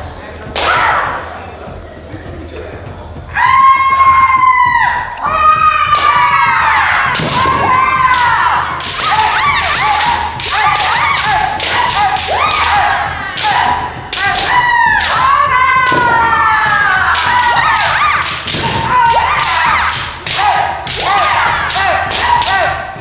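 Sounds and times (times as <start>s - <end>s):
fencers shouting: 3.3s - 23.0s
stamping footsteps: 3.6s - 23.0s
bamboo sword strikes: 17.2s - 22.6s.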